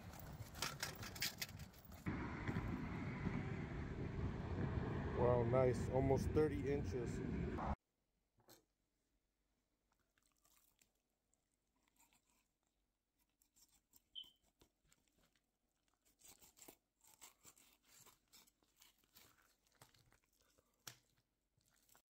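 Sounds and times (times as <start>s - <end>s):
knife scraping through fish flesh: 11.8s - 21.1s.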